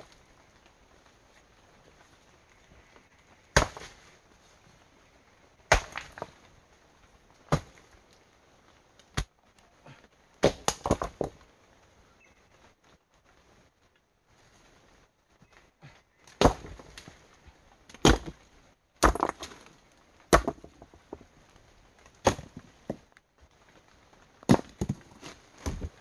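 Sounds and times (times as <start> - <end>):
rocks clacking onto stones: 5.6 - 6.5, 10.4 - 11.5, 16.3 - 17.3, 17.9 - 18.4, 19.0 - 21.4, 22.0 - 23.2, 24.4 - 26.0.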